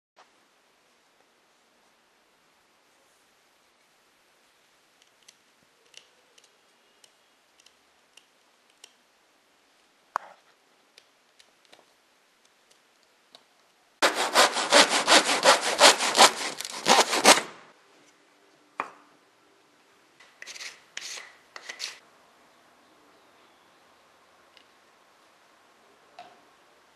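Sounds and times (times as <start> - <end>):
hand saw cutting a thin rod: 14.0 - 17.6.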